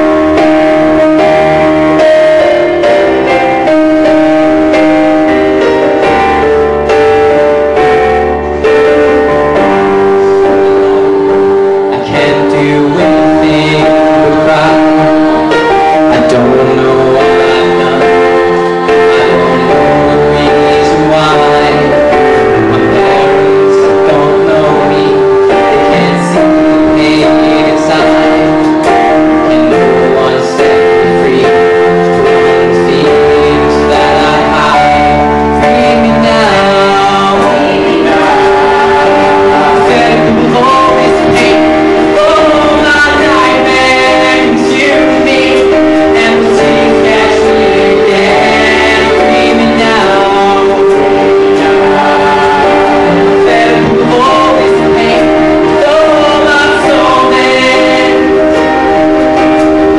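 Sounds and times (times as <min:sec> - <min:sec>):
man singing into microphone: 0:00.0 - 0:59.9.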